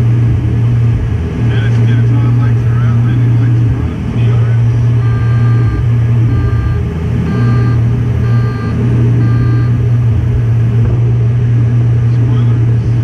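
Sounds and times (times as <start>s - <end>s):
aircraft cockpit hum: 0.0s - 13.0s
cockpit alert beeping: 5.0s - 9.8s.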